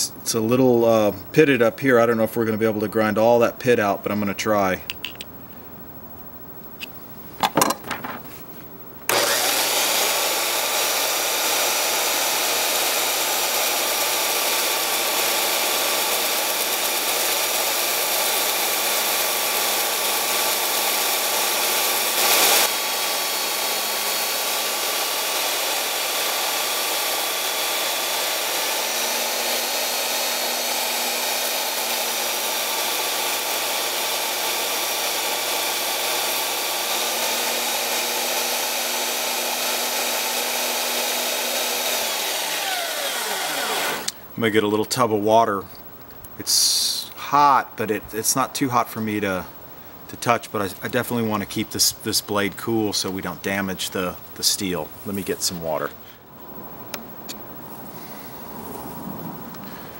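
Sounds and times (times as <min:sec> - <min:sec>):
belt sander grinding steel: 0:09.1 - 0:44.2.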